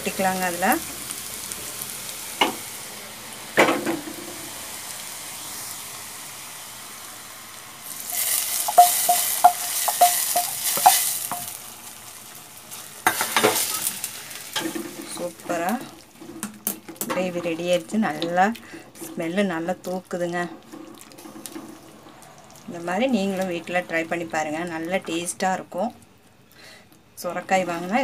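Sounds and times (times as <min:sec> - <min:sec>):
onions sizzling in oil: 0:00.0 - 0:25.6
knocks of stirring: 0:08.0 - 0:11.6
pan scraping clinks: 0:08.1 - 0:11.6.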